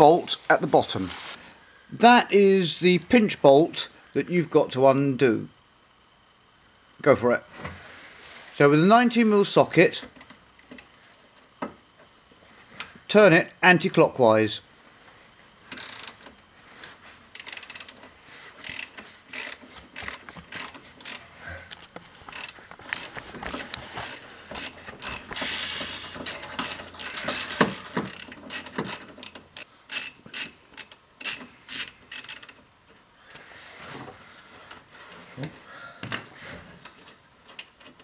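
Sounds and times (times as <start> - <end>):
socket ratchet clicking: 15.7 - 16.2, 17.4 - 18.0, 18.6 - 21.2.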